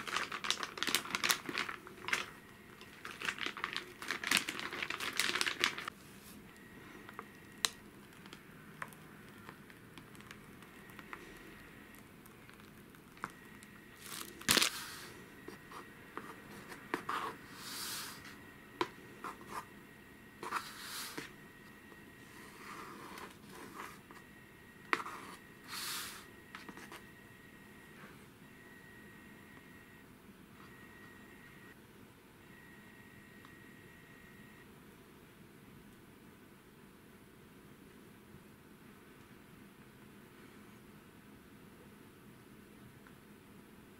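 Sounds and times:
plastic piping bag crinkling: 0.0s - 6.0s, 7.0s - 15.1s.

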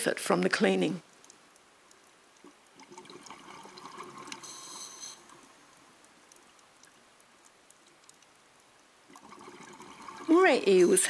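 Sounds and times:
faint underwater clicking: 1.0s - 11.0s
bubbling water: 1.2s - 11.0s
steady hiss: 3.6s - 11.0s.

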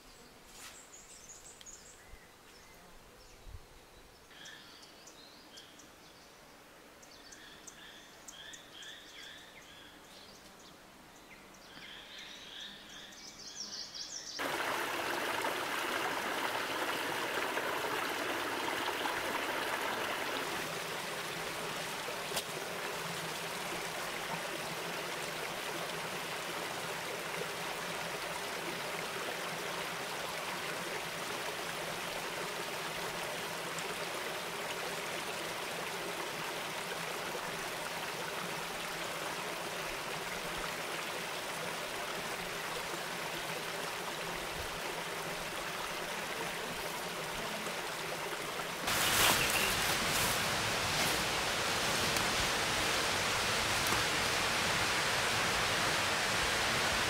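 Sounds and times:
stream trickling over stones: 14.4s - 57.0s.

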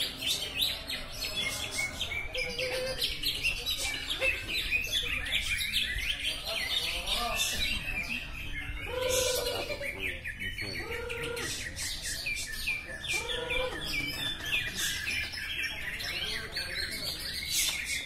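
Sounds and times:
birds chirping and trilling: 0.0s - 18.0s
low bird call: 8.8s - 15.2s.

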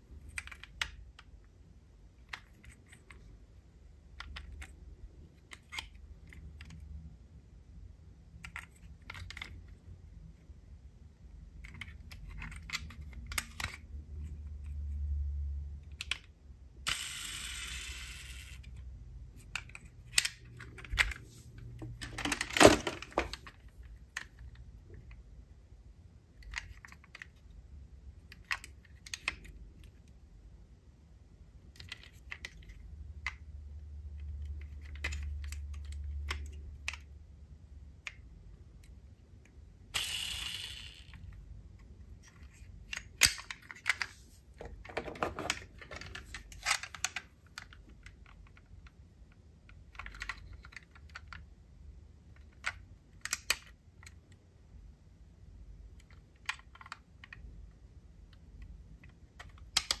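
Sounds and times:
metal model cars clicking: 40.0s - 49.0s, 52.3s - 54.2s.

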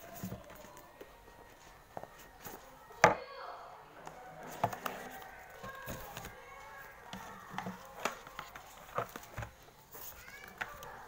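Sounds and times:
paper and box handling: 0.0s - 3.0s, 4.4s - 11.0s.

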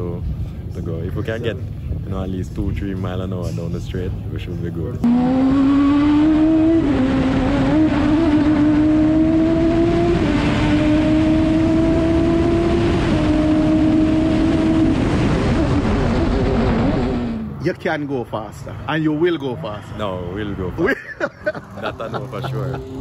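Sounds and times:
wind and road noise: 0.0s - 23.0s
race car engine at full throttle: 5.0s - 23.0s.

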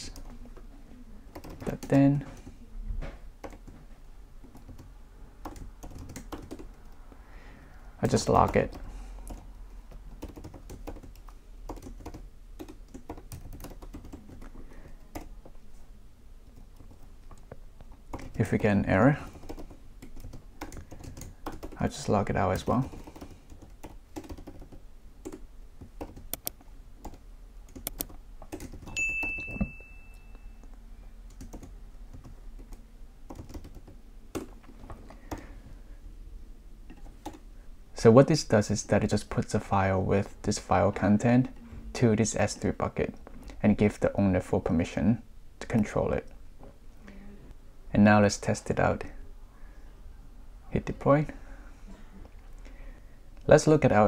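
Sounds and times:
computer keyboard typing: 1.3s - 2.5s, 3.4s - 3.8s, 4.4s - 7.1s, 8.0s - 15.3s, 18.1s - 29.7s, 31.3s - 35.5s, 36.9s - 37.4s
high ding: 28.9s - 30.6s.

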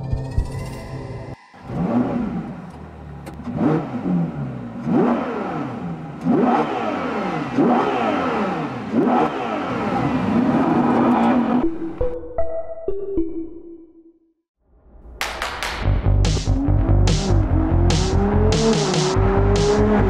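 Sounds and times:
car engine starting and revving: 1.5s - 11.7s, 16.0s - 20.0s.

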